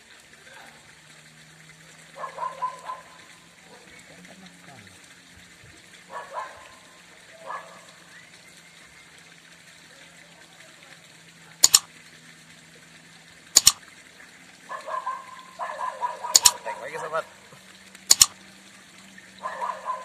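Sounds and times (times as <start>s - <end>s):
mouse double click: 11.6s - 11.9s, 13.6s - 13.8s, 16.4s - 16.6s, 18.1s - 18.4s.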